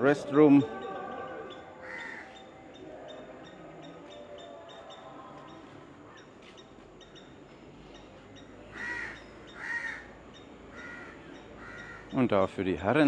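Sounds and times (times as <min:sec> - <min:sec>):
faint outdoor background noise: 0:00.0 - 0:13.0
crow cawing: 0:01.8 - 0:02.4, 0:08.7 - 0:12.2.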